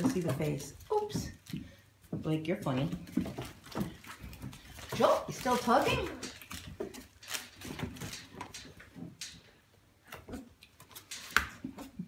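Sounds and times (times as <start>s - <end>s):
paws and toys clicking on tile: 3.1s - 12.0s.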